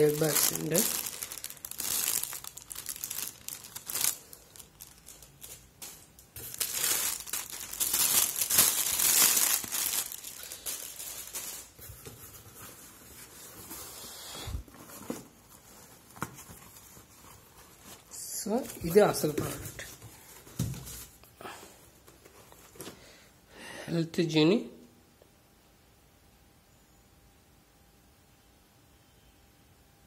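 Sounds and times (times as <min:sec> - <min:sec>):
plastic air pillows crinkling: 0:00.0 - 0:21.2.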